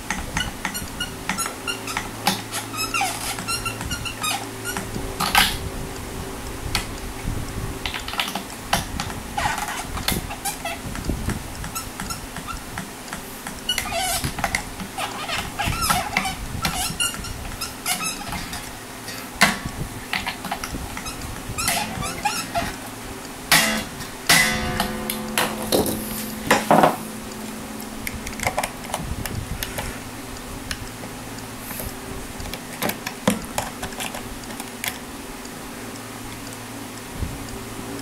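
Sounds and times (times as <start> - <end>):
guitar string ringing: 20.5 - 28.0.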